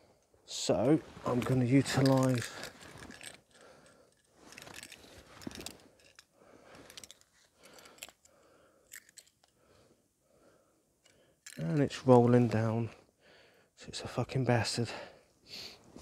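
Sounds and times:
small objects clicking and rustling: 1.2s - 9.6s, 11.0s - 11.9s.

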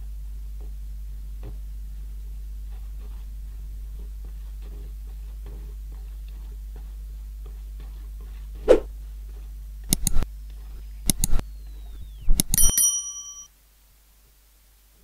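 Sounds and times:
low steady hum: 0.0s - 15.0s
mouse-click sound effects: 9.9s - 10.2s, 11.1s - 11.4s, 12.3s - 12.7s.

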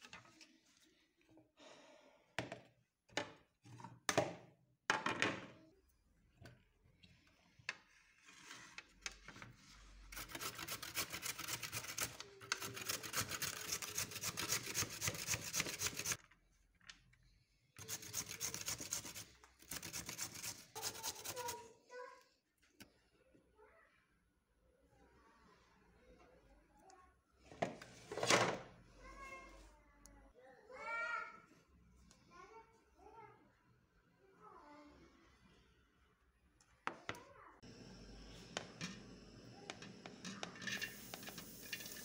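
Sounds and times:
carrots grated on metal grater: 10.1s - 16.2s, 17.8s - 21.6s, 40.3s - 42.0s.

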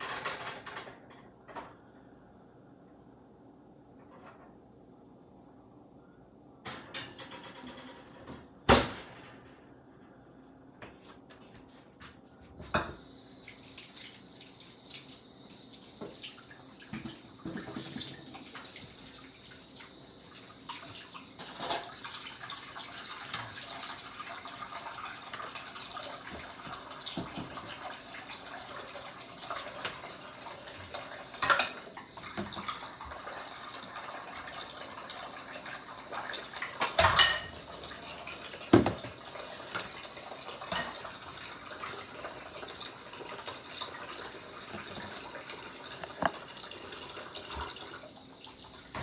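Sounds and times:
faucet running into a sink: 12.7s - 49.0s
utensils and dishes clinking: 21.4s - 22.2s, 31.4s - 31.9s, 36.6s - 37.7s, 40.5s - 41.3s.

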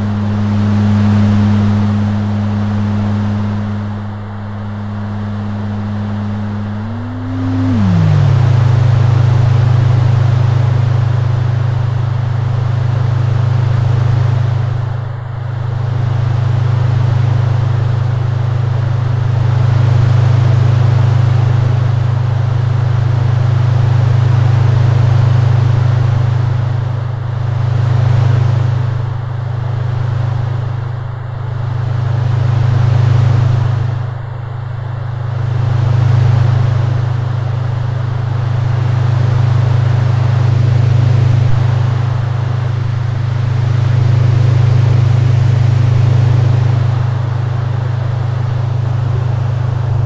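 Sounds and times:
deep electronic drone hum: 0.0s - 12.0s, 39.9s - 48.4s.

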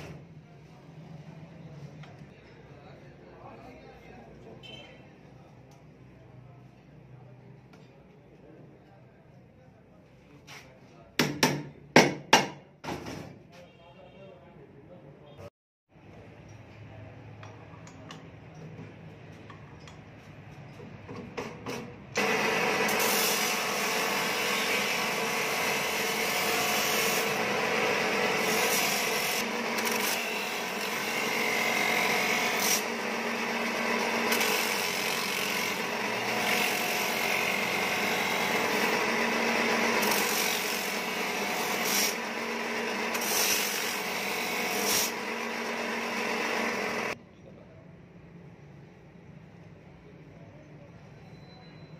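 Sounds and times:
drill press motor hum: 22.2s - 47.2s.

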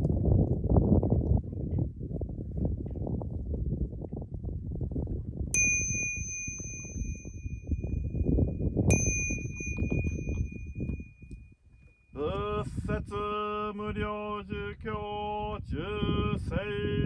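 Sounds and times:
wind buffeting microphone: 0.0s - 17.0s
small bell ringing: 5.6s - 12.2s.

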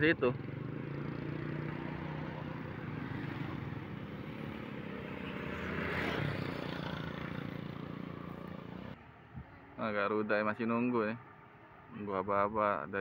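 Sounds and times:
motor vehicle passing: 0.0s - 9.0s.

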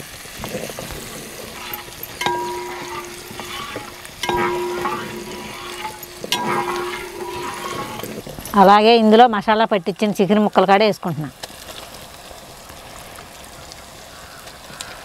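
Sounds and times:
water swishing in a pot: 0.0s - 8.9s
ladle knocking on metal pot: 1.5s - 8.2s.

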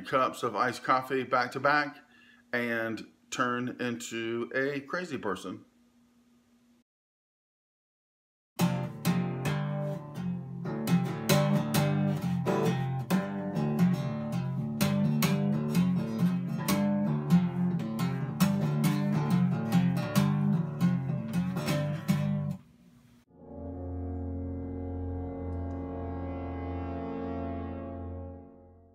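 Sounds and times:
acoustic guitar strumming: 8.6s - 22.6s.

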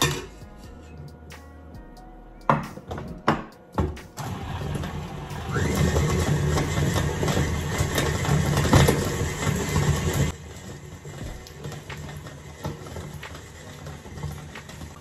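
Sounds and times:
stand mixer motor whine: 4.2s - 15.0s.

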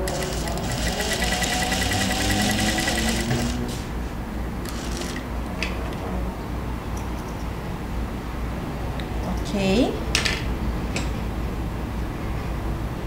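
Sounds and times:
sewing machine stitching: 0.0s - 3.8s, 4.7s - 5.3s.

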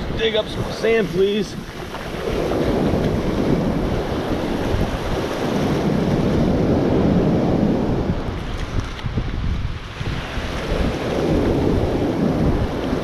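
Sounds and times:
surf washing over sand: 0.0s - 13.0s
wind buffeting microphone: 0.0s - 13.0s.

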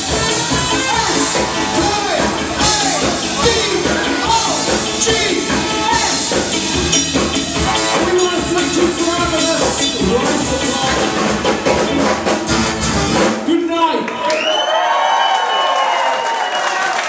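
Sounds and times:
ska band playing live: 0.0s - 13.8s
trombone: 0.2s - 13.4s.

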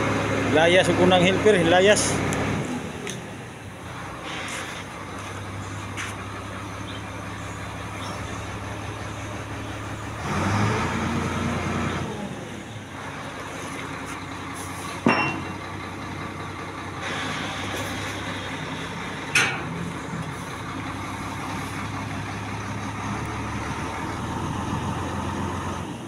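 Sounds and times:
vehicle engine running: 0.0s - 26.0s
sharp ringing knocks: 15.0s - 15.6s.

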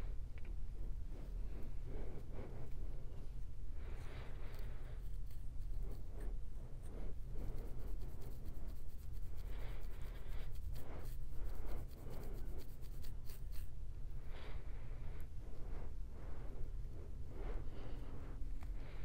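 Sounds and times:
steady low hum: 0.0s - 19.0s
comb scratching scalp: 4.3s - 13.8s.

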